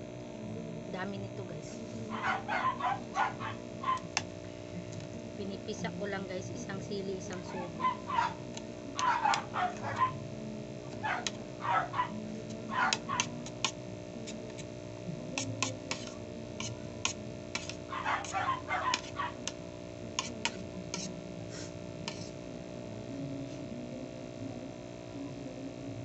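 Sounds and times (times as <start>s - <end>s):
steady low hum: 0.0s - 26.0s
metal spoon scraping ceramic plate: 15.4s - 19.2s, 20.2s - 21.1s.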